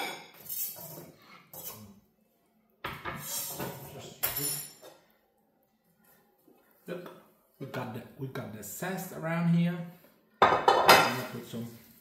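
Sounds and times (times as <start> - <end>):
dishes and utensils clattering: 0.0 - 1.9, 2.9 - 5.1, 10.4 - 11.5.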